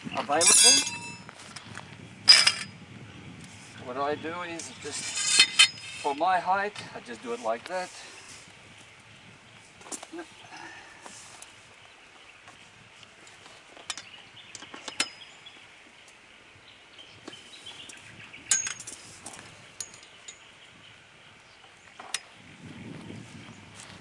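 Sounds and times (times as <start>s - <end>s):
metal poles clinking: 0.2s - 1.4s, 2.3s - 2.8s, 4.5s - 6.9s, 13.8s - 15.4s, 17.9s - 20.6s.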